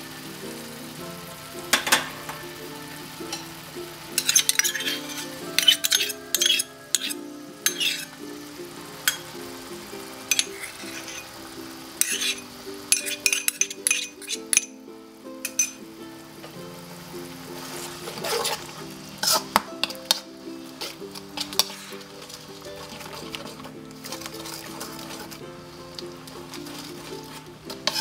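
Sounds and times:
light sizzling: 0.0s - 28.0s
slow background music: 0.0s - 28.0s
metal spoon clinking on wok: 4.2s - 8.2s, 10.3s - 11.2s, 12.0s - 14.8s, 15.4s - 15.8s.

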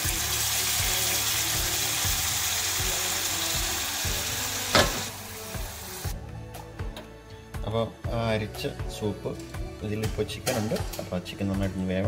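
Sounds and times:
stock pouring and sizzling: 0.0s - 6.1s.

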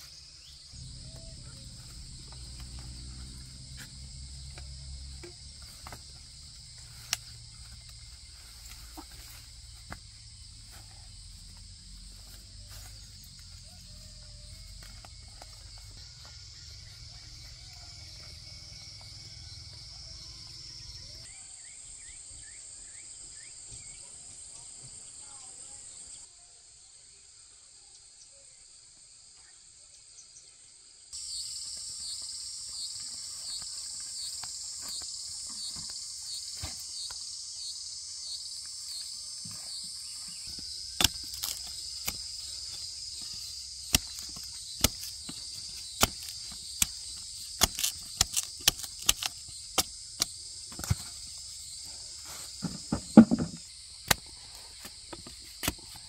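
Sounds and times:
pulsing insect chorus: 0.0s - 56.0s
sharp clicks and knocks: 52.6s - 54.2s.

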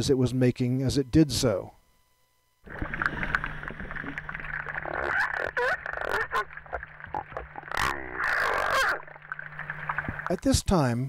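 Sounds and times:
steady low hum: 0.0s - 11.0s
water noise: 2.6s - 10.7s
seal warbling underwater: 2.7s - 10.4s.

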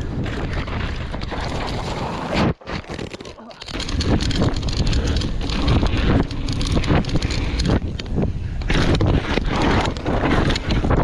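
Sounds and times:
bike clattering over bumps: 2.8s - 11.0s
wind buffeting microphone: 3.7s - 11.0s.

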